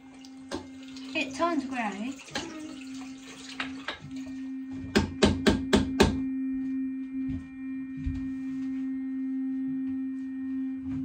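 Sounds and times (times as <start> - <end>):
electric toothbrush humming: 0.0 - 6.7
sharp knocks: 4.9 - 6.2.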